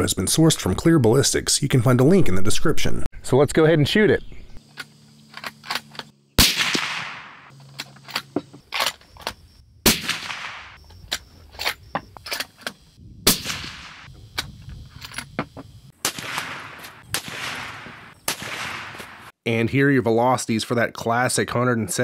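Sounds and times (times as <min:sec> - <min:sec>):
rifle shots with echo: 0:06.4 - 0:07.5, 0:09.9 - 0:10.8, 0:13.3 - 0:14.1, 0:16.0 - 0:19.3.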